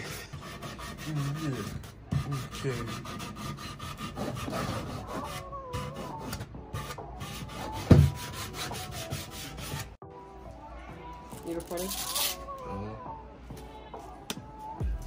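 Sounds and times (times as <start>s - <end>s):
sandpaper rubbing on wood: 0.0s - 10.0s.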